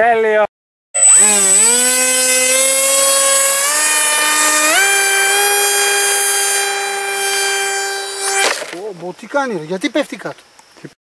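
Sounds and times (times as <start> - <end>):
model jet motor whining: 1.0 - 8.8.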